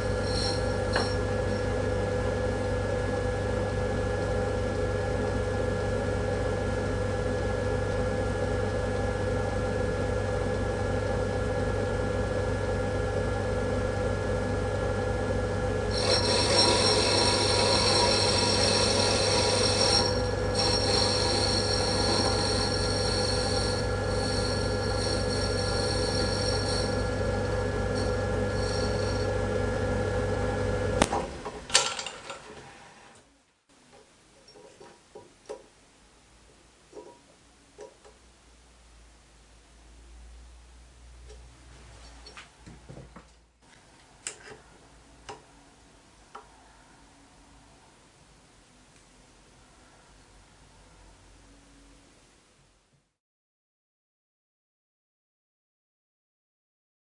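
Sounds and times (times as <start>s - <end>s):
high-pitched squeal: 0.0s - 1.2s, 15.9s - 29.4s
lathe motor hum: 0.0s - 2.8s, 14.8s - 31.6s.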